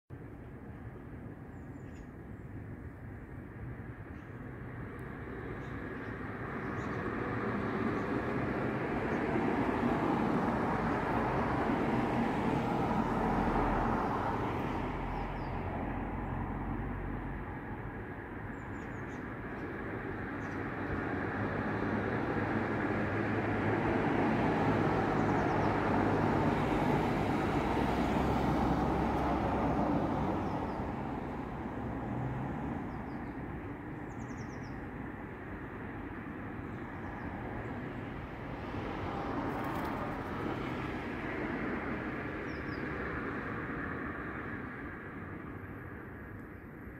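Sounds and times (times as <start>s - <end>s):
distant road traffic: 0.1s - 46.9s
bird chirps: 1.5s - 2.2s.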